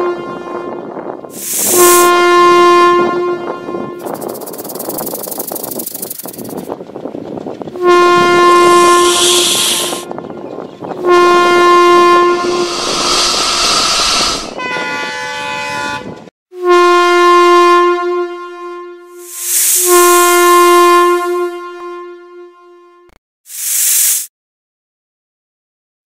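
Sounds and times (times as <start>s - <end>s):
locomotive horn blasts: 0.0s - 4.3s, 7.7s - 12.9s, 14.5s - 23.2s
burst of hiss: 1.3s - 2.1s, 9.0s - 10.0s, 12.6s - 14.6s, 19.2s - 20.2s, 23.5s - 24.3s
train rumbling: 3.6s - 16.3s.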